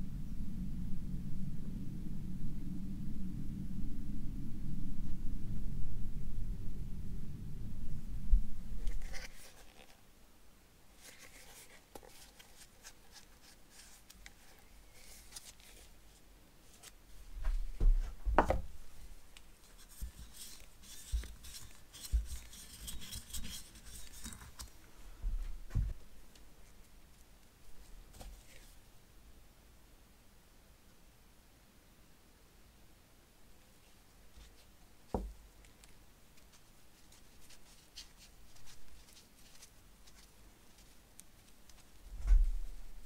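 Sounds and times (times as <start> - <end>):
low rumble: 0.0 - 9.1
gloved hands rubbing: 11.0 - 16.1, 19.6 - 24.7, 36.4 - 42.0.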